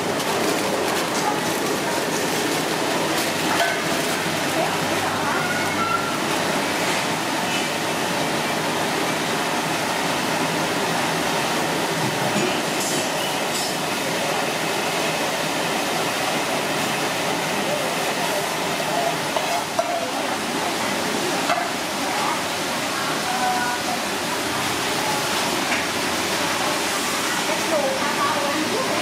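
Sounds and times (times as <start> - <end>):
faint voices: 0.0 - 6.7.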